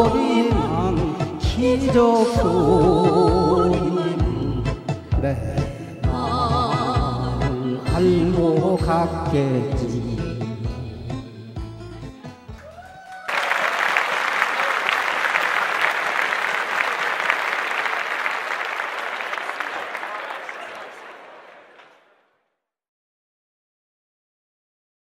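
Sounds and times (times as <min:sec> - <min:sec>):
musical accompaniment: 0:00.0 - 0:13.9
applause: 0:12.5 - 0:22.2.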